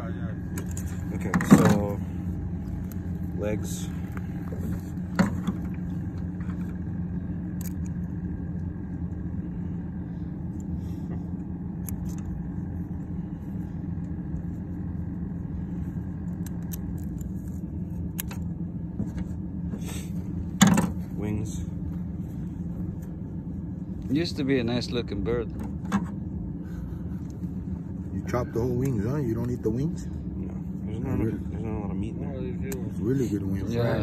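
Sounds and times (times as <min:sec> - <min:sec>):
vehicle engine idling: 0:00.0 - 0:34.0.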